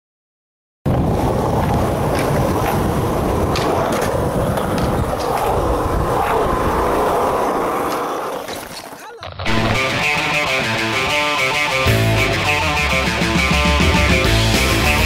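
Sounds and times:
wind buffeting microphone: 0:00.9 - 0:08.0
skateboard wheels rolling on stone: 0:00.9 - 0:11.1.

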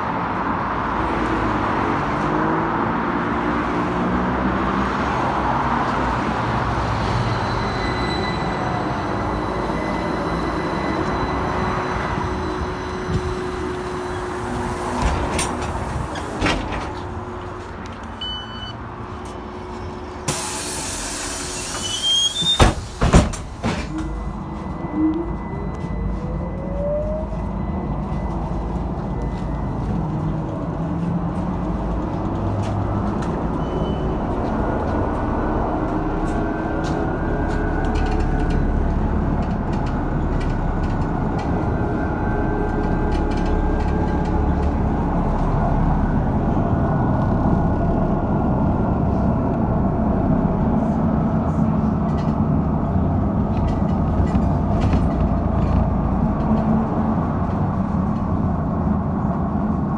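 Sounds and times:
running gear and road rumble: 0:22.0 - 0:59.9.

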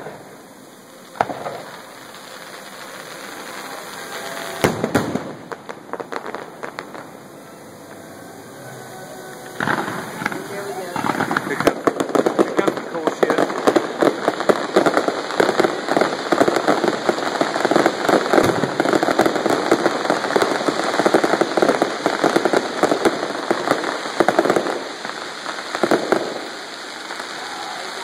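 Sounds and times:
fireworks crackling: 0:00.0 - 0:28.0.

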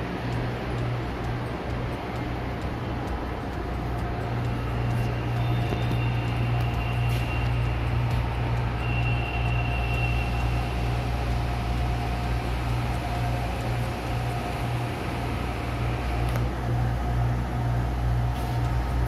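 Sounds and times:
ventilation hum and hiss: 0:00.0 - 0:19.0.

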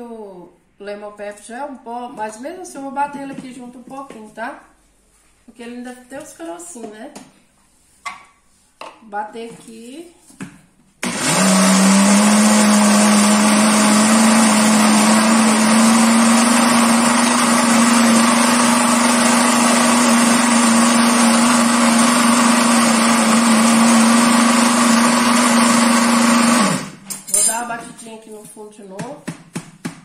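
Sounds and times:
blender motor whining: 0:11.0 - 0:27.0.

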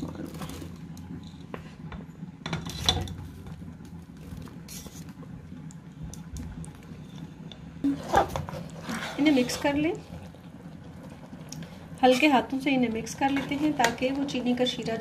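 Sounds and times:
low steady hum: 0:00.0 - 0:15.0
spatula scraping metal strainer: 0:07.9 - 0:09.8.

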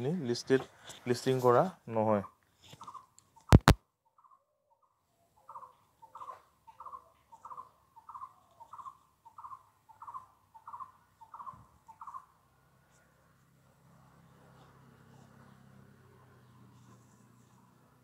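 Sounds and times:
faint bird calling: 0:02.2 - 0:12.4.

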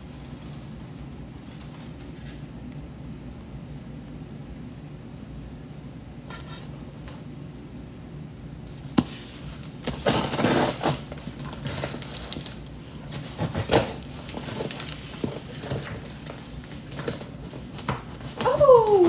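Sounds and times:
cardboard packaging rustling: 0:09.1 - 0:19.0.

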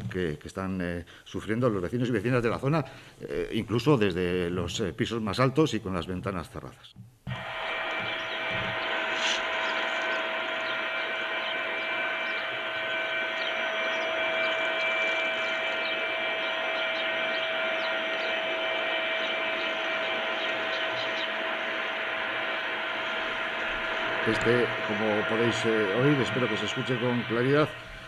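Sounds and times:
steady machinery hum: 0:07.0 - 0:28.0
hiss: 0:07.3 - 0:15.5, 0:20.4 - 0:28.0.

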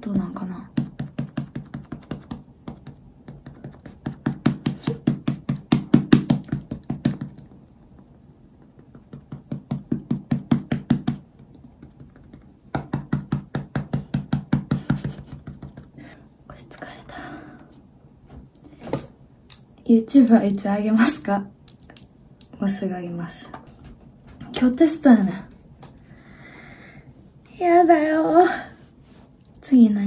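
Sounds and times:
foundation puff tapping on face: 0:00.7 - 0:07.4, 0:08.6 - 0:16.0.

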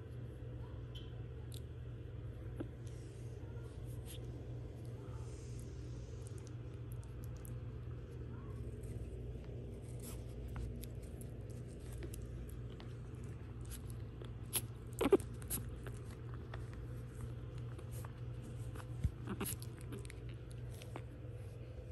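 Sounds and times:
low room hum: 0:00.0 - 0:21.9
puppies scratching and scuffling: 0:07.5 - 0:21.9.

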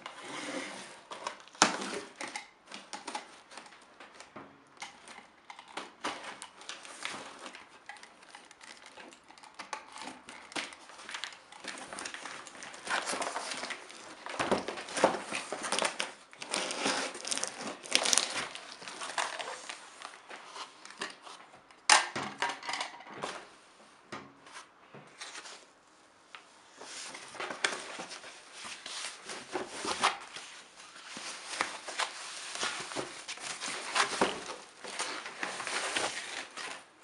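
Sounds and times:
foam sheet crinkling: 0:10.0 - 0:20.6.

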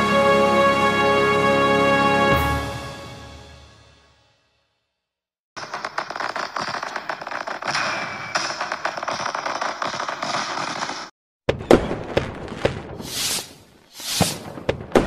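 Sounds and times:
fireworks bangs: 0:05.6 - 0:15.0
fireworks crackling: 0:12.4 - 0:15.0
hissing whooshes: 0:13.0 - 0:14.5.

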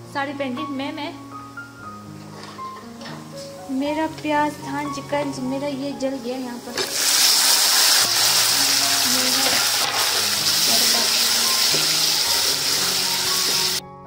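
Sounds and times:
tomatoes sizzling in hot oil: 0:05.3 - 0:13.8.

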